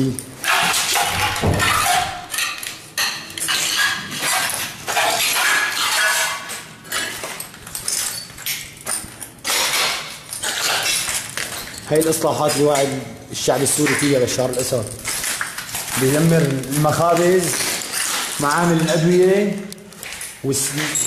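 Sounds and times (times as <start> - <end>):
debris clinking: 0.0 - 13.0
footsteps crunching on broken glass: 0.0 - 21.0.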